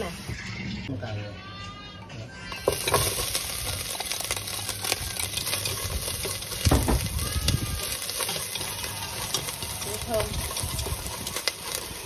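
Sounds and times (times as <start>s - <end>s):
shrimp sizzling in hot oil: 2.5s - 12.0s
chopsticks stirring in pot: 2.6s - 12.0s.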